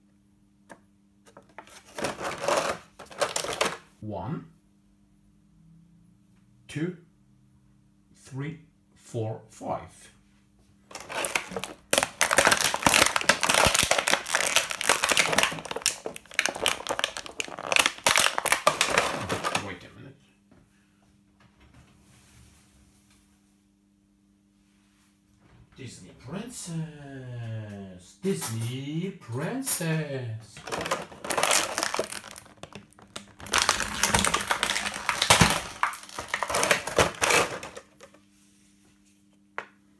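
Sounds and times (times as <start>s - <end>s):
plastic blister tray crinkling: 1.3s - 3.9s, 10.9s - 19.7s, 30.6s - 38.2s
plastic packaging crackling: 1.5s - 3.9s, 10.9s - 19.7s, 30.6s - 38.1s.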